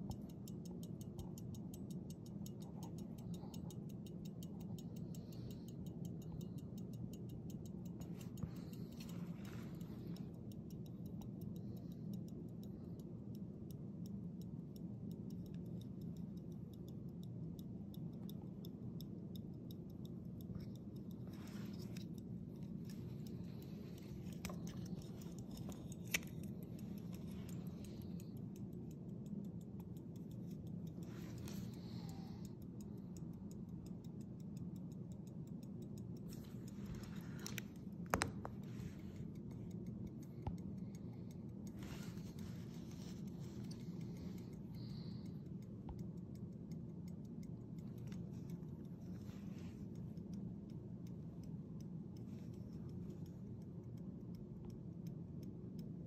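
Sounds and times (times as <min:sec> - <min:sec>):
pocket watch ticking: 0:00.0 - 0:56.0
watch case clicks: 0:37.1 - 0:38.6.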